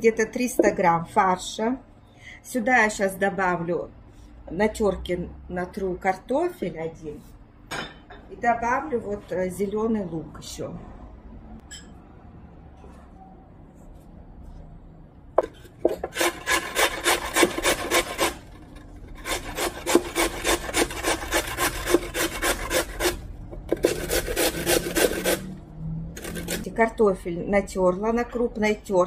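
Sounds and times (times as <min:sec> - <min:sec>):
potato rasping on a grater: 0:15.9 - 0:25.5, 0:26.2 - 0:26.7.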